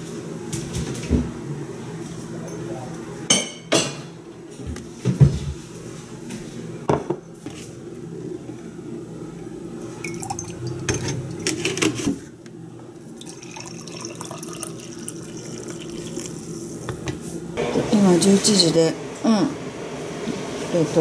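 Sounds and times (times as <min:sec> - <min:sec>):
liquid pouring into a mug: 0:10.0 - 0:11.4, 0:13.1 - 0:17.0.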